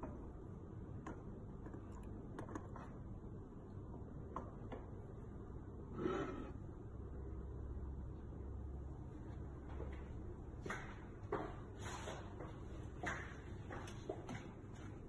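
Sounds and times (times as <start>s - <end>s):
low room noise: 0.0s - 15.0s
short rubbing slide: 5.9s - 6.6s.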